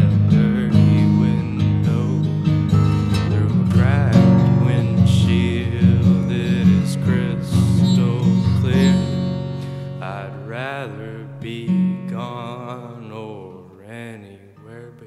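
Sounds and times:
wordless song with sliding high notes: 0:06.8 - 0:10.5.

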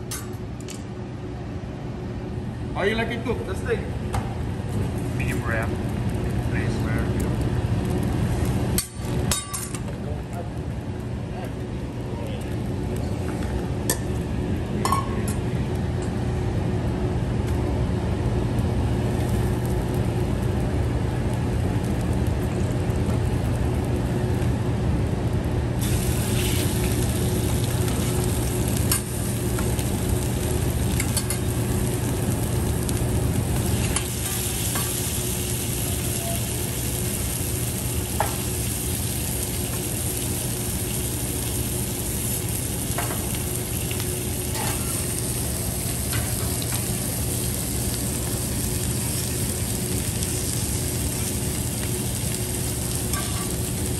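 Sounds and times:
steady low hum: 0:00.0 - 0:53.9
food sizzling on a steel griddle: 0:04.9 - 0:09.9, 0:19.0 - 0:20.6, 0:25.8 - 0:53.9
metal utensils clicking on griddle: 0:31.0 - 0:31.4, 0:53.1 - 0:53.6.

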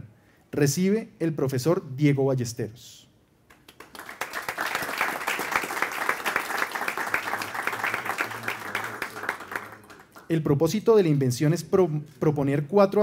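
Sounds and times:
audience applauding: 0:03.5 - 0:10.3.

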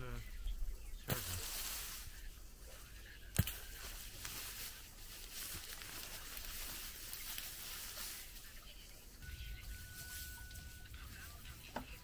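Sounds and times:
hands digging through dry soil: 0:01.1 - 0:08.6.

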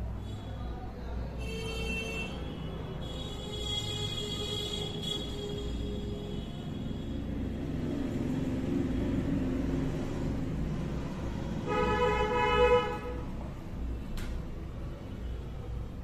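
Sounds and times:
vehicle horn: 0:01.4 - 0:07.2, 0:11.6 - 0:13.3
low traffic rumble: 0:02.3 - 0:16.0.

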